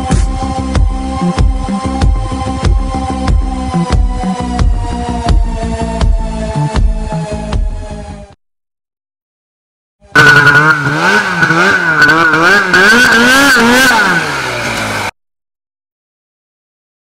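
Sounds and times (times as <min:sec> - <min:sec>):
snowmobile engine revving: 0:10.1 - 0:15.2.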